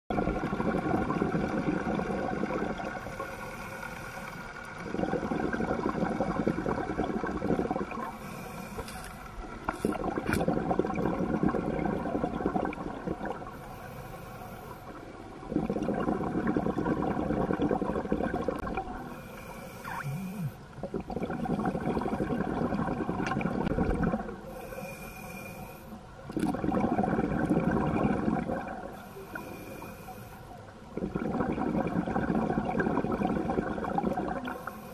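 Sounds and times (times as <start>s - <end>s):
bubbles rushing underwater: 0.1s - 3.2s, 4.7s - 8.2s, 9.7s - 13.6s, 15.4s - 19.2s, 19.8s - 24.4s, 26.3s - 29.1s, 30.9s - 34.7s
regulator inhalation hiss: 8.1s - 9.1s, 19.1s - 20.6s, 24.5s - 26.0s, 29.1s - 30.4s.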